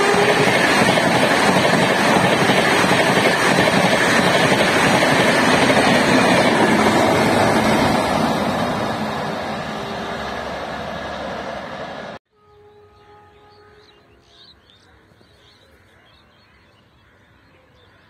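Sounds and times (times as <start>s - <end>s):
train coaches rushing past: 0.0s - 12.2s.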